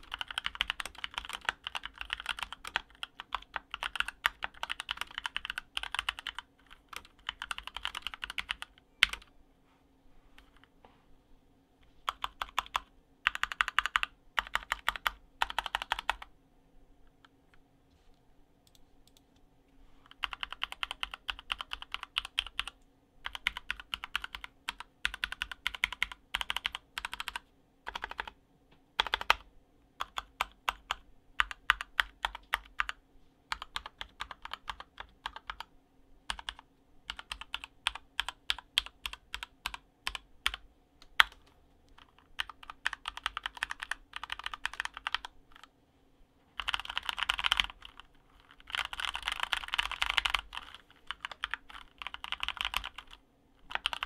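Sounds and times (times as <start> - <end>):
mechanical keyboard keystrokes: 0.0 - 9.3, 20.2 - 28.3, 29.0 - 29.4, 36.3 - 45.7, 46.6 - 54.0.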